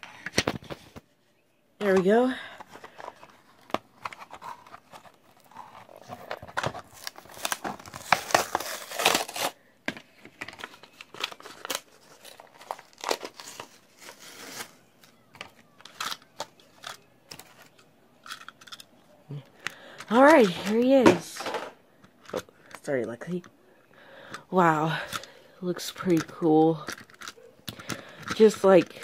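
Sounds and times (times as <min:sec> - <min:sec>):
packaging tearing and crinkling: 0:04.0 - 0:09.6, 0:10.5 - 0:14.8
plastic clicks: 0:25.9 - 0:29.0.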